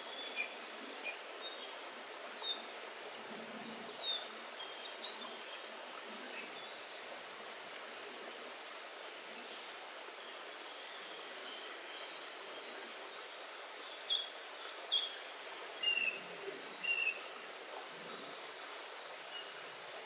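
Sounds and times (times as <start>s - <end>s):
stream running over rocks: 0.0s - 20.0s.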